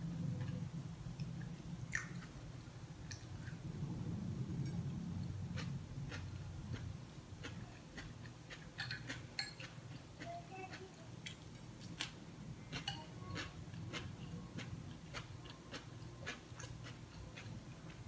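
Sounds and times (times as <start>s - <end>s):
soft crunching chewing: 4.6s - 18.0s.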